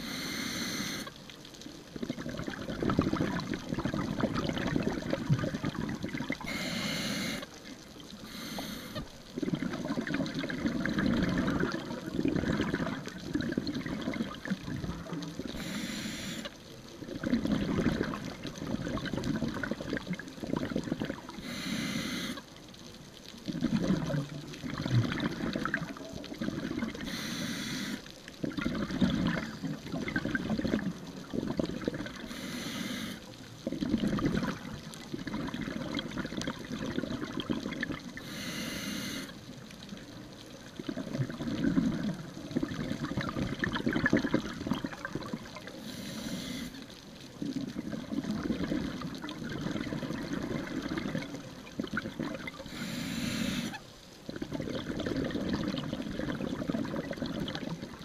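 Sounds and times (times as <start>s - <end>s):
regulator hissing inhales: 0.0s - 1.1s, 6.4s - 7.5s, 8.2s - 9.0s, 15.6s - 16.5s, 21.4s - 22.4s, 27.0s - 28.0s, 32.3s - 33.2s, 38.2s - 39.4s, 45.8s - 46.8s, 52.7s - 53.8s
low bubbling: 1.9s - 6.5s, 9.3s - 15.7s, 17.0s - 21.5s, 23.4s - 27.2s, 28.4s - 32.3s, 33.6s - 38.3s, 40.7s - 46.0s, 47.2s - 58.0s.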